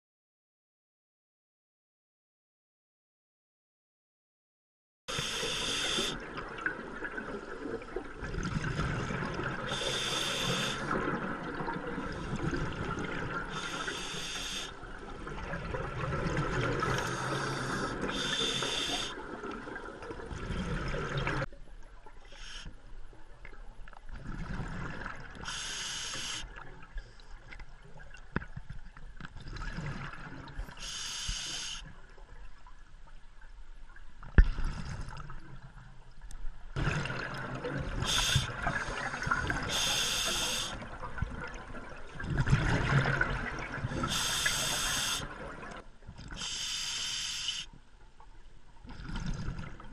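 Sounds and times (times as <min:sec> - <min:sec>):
regulator breathing hiss: 0:05.1 - 0:06.2, 0:09.7 - 0:10.9, 0:13.5 - 0:14.8, 0:17.0 - 0:19.2, 0:22.3 - 0:22.8, 0:25.4 - 0:26.5, 0:30.8 - 0:31.9, 0:38.0 - 0:38.6, 0:39.7 - 0:40.8, 0:44.0 - 0:45.3, 0:46.4 - 0:47.8
exhaled air bubbling: 0:05.2 - 0:22.6, 0:36.8 - 0:46.5, 0:48.8 - 0:49.9.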